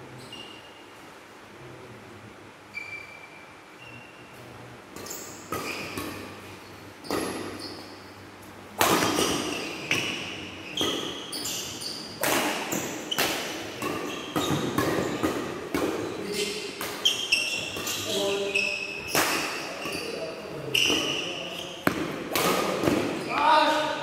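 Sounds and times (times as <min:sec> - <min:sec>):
shoes squeaking on court: 0:00.2 - 0:00.8, 0:02.7 - 0:04.2, 0:05.0 - 0:08.1, 0:08.8 - 0:24.0
rackets hitting shuttlecock: 0:08.8 - 0:18.4, 0:19.0 - 0:20.1, 0:20.8 - 0:23.9.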